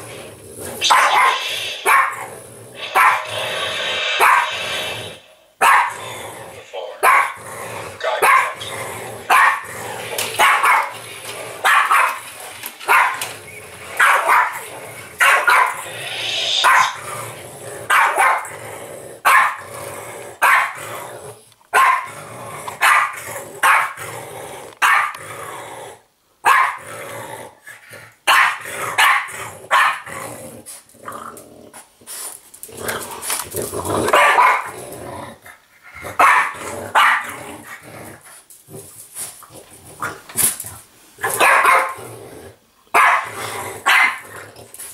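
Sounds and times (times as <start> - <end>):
dog barking: 0.8 - 2.2, 2.9 - 3.3, 5.6 - 6.0, 7.0 - 7.4, 8.2 - 8.6, 9.3 - 9.6, 10.4 - 10.9, 11.6 - 12.2, 12.9 - 13.2, 14.0 - 14.6, 15.2 - 15.8, 16.6 - 17.0, 17.9 - 18.4, 19.3 - 19.6, 20.4 - 20.8, 21.8 - 22.1, 22.8 - 24.0, 24.8 - 25.2, 26.4 - 26.8, 28.3 - 30.0, 34.1 - 34.7, 36.2 - 37.4, 41.4 - 42.0, 43.0 - 43.3, 43.9 - 44.2.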